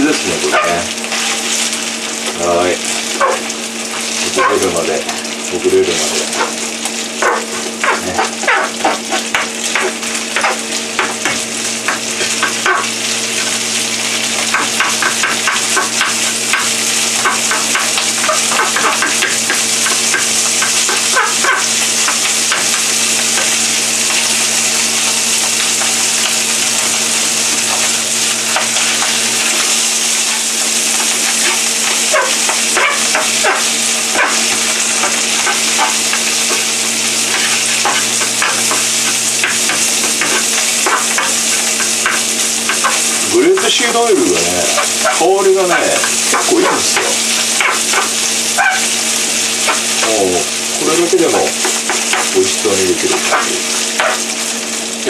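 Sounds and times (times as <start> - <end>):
rice sizzling in a frying pan: 0.0 - 55.0
spatula scraping and tapping pan: 0.5 - 1.6, 7.2 - 13.6, 14.3 - 24.4, 31.0 - 48.9, 51.6 - 52.4.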